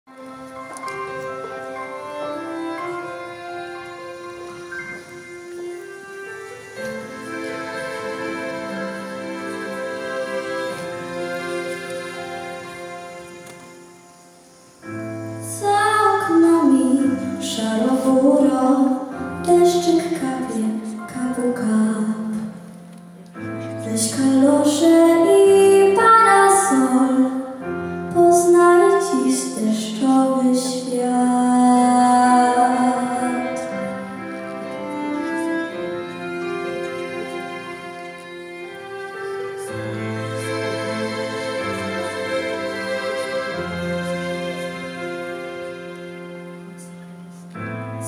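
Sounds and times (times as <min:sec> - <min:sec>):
backing music: 0:00.1 - 0:30.2, 0:31.1 - 0:48.0
instrumental accompaniment: 0:00.1 - 0:48.0
girl singing into a microphone: 0:15.4 - 0:22.4, 0:23.8 - 0:27.4, 0:28.1 - 0:33.6.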